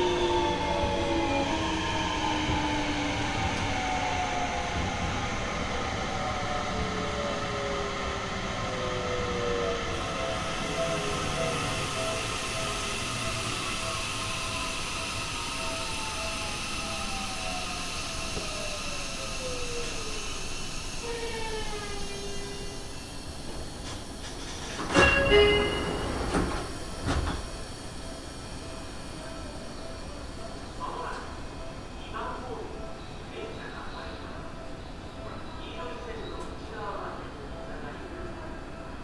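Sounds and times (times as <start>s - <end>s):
train inverter whining: 0.0s - 37.1s
train stopping noise bursts: 7.4s - 32.0s.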